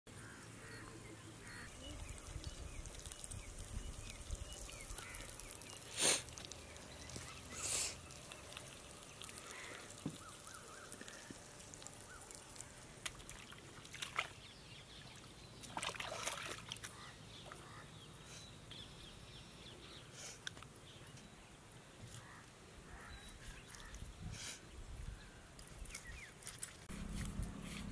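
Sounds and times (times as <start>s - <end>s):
outdoor background noise: 0.1s - 27.9s
water sloshing and splashing: 4.7s - 17.6s.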